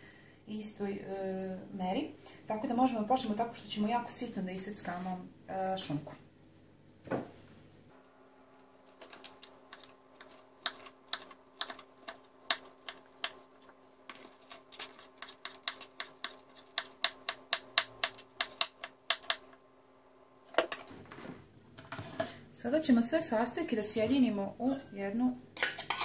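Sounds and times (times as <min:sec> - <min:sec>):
knife chopping on wooden board: 0:14.8 - 0:19.5.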